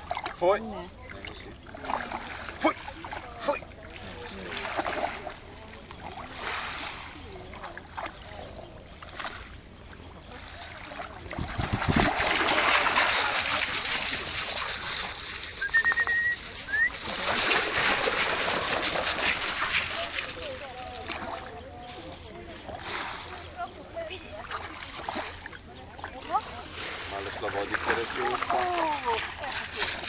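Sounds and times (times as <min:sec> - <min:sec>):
dogs splashing through water: 0:00.0 - 0:30.0
short high whistle: 0:15.6 - 0:17.0.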